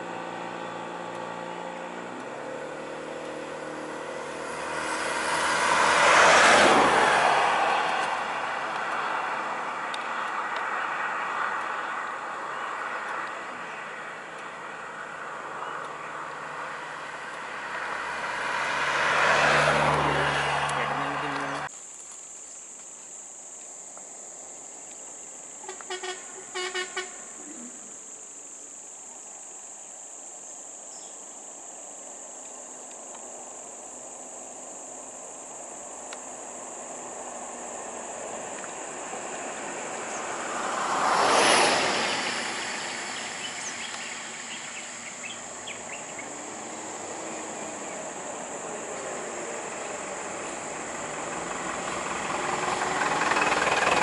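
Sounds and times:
vehicle rumble: 0.0s - 54.0s
idling vehicle engines: 19.9s - 21.7s, 41.8s - 54.0s
high-pitched insect drone: 31.7s - 54.0s.

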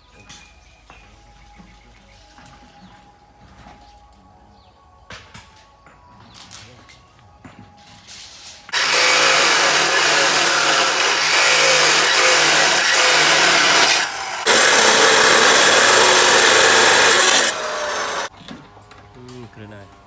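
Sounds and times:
cut-off saw grinding steel bar: 8.7s - 18.3s.

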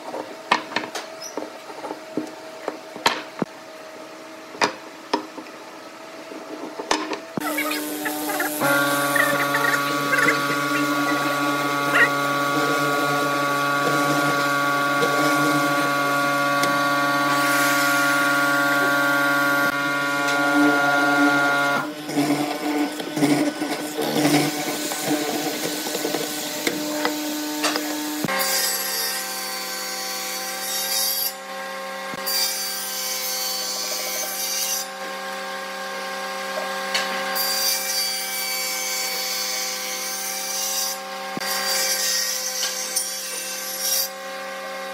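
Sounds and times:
mortising machine cutting wood: 7.4s - 29.4s
table saw cutting: 7.4s - 44.9s.

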